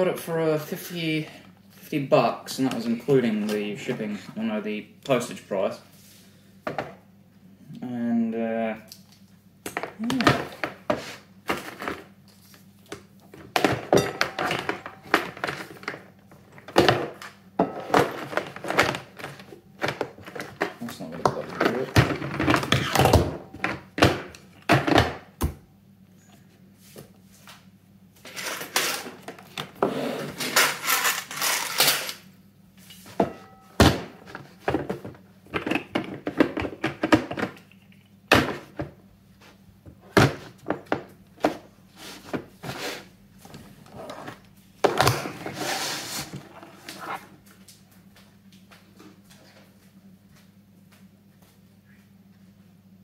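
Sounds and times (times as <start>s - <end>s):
steady low hum: 0.0s - 53.0s
scraping and rustling: 45.1s - 47.4s.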